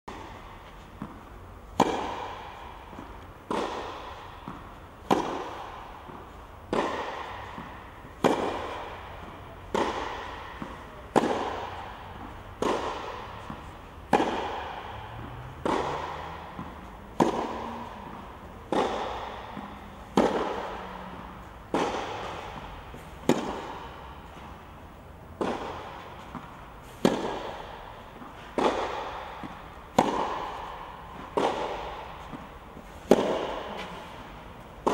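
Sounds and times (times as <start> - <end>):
tennis ball struck by racket: 0.1 - 34.9.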